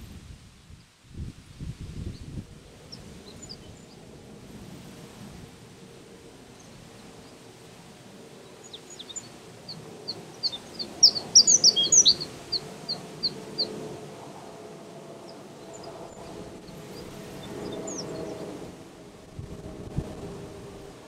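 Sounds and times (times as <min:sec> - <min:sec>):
bird chirping song: 0:02.9 - 0:04.1, 0:08.4 - 0:13.8, 0:15.2 - 0:18.6.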